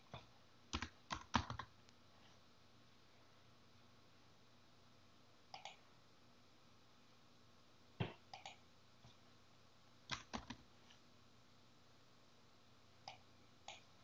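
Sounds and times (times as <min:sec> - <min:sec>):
mouse clicks: 0:05.5 - 0:05.8, 0:08.3 - 0:08.6.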